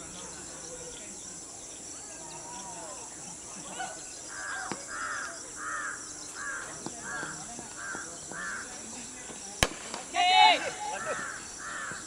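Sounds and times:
bird calling: 10.4s - 12.0s.

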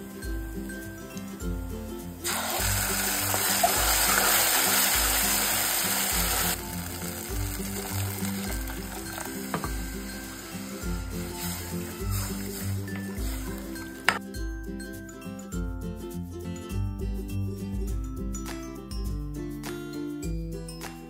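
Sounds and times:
background music: 0.0s - 21.0s
paste sizzling in hot oil: 2.2s - 14.2s.

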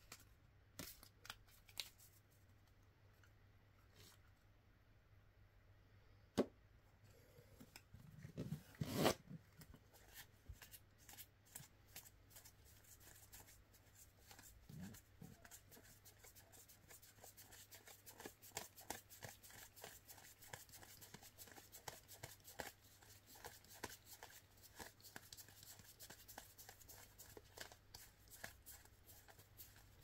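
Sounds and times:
playing cards rustling and clicking: 0.0s - 2.2s, 14.2s - 30.0s.

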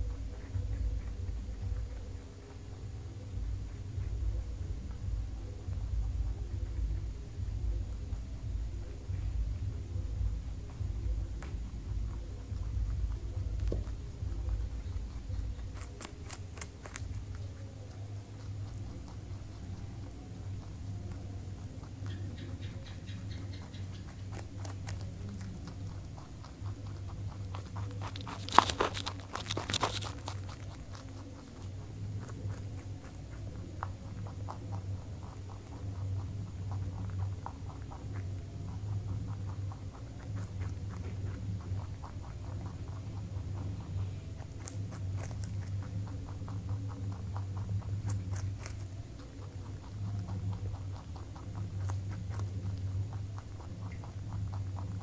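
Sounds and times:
rabbit chewing carrot: 0.0s - 55.0s
steady low hum: 0.0s - 55.0s.

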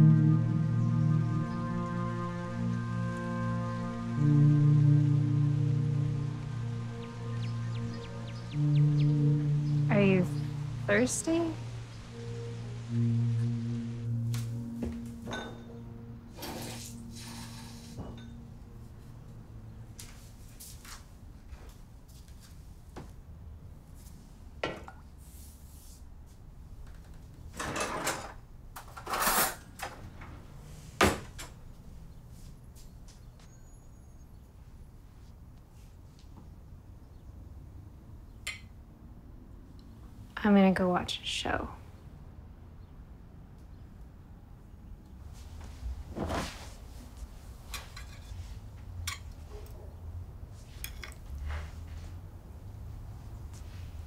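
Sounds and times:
low steady hum: 0.0s - 20.6s.

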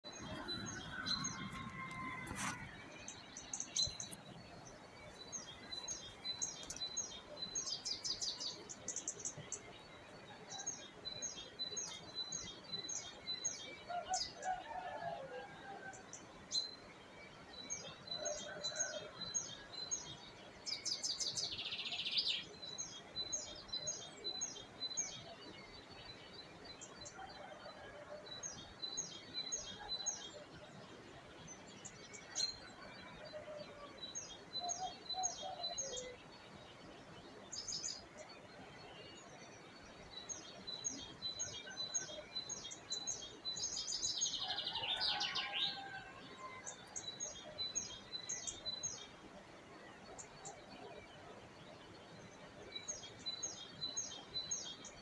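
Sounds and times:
songbirds chirping and singing: 0.0s - 55.0s.

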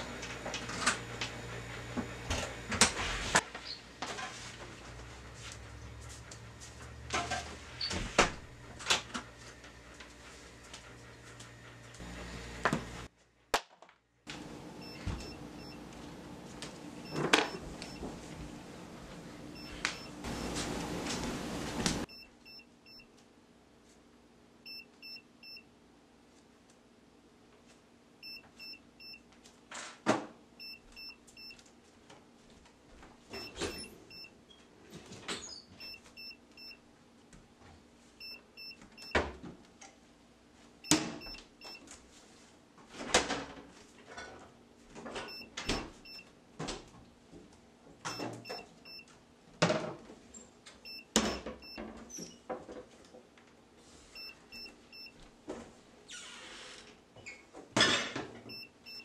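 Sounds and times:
short electronic beeps: 22.1s - 23.0s, 24.7s - 25.6s, 28.2s - 29.2s, 30.6s - 31.6s, 33.4s - 34.3s, 35.8s - 36.8s, 38.2s - 39.1s, 45.3s - 46.2s, 48.1s - 49.0s, 50.8s - 51.8s, 54.2s - 55.1s, 58.5s - 59.0s.

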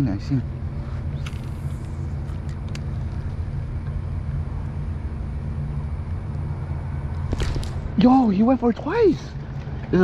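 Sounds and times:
low mechanical hum: 0.0s - 10.0s.

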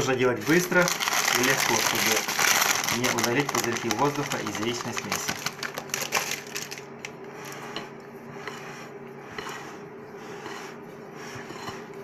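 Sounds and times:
spatula scraping batter in bowl: 7.3s - 12.0s
glass bowl rubbing: 7.4s - 12.0s.

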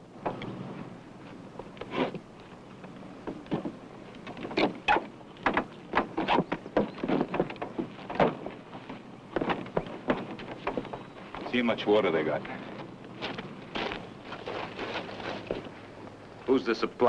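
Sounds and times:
wooden knocks and thumps: 2.8s - 11.6s.

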